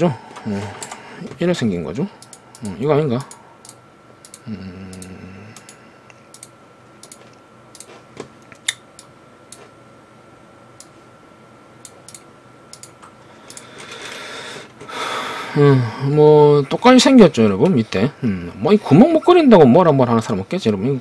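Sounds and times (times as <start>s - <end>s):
mouse and keyboard clicks: 6.3s - 7.9s.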